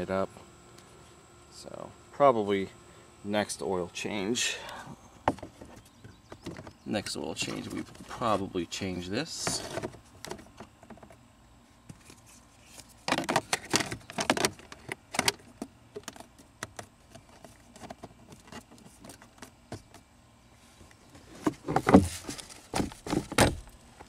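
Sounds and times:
plastic scraping and clicking: 5.3 - 8.4, 11.9 - 20.1
glove box clattering shut: 21.4 - 23.7.

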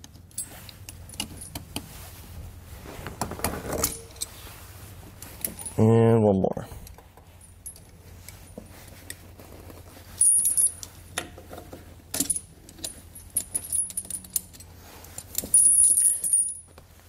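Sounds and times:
metal chain clinking and jangling: 0.3 - 1.7, 3.7 - 4.4, 7.3 - 9.2, 10.0 - 11.1, 12.1 - 16.8.

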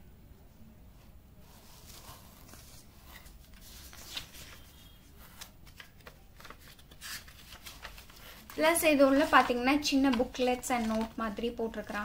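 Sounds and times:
bubble wrap crinkling: 5.4 - 12.0.

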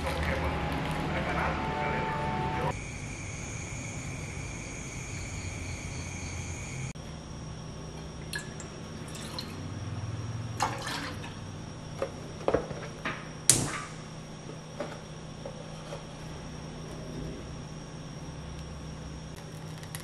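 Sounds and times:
milk pouring into saucepan: 8.3 - 9.7.

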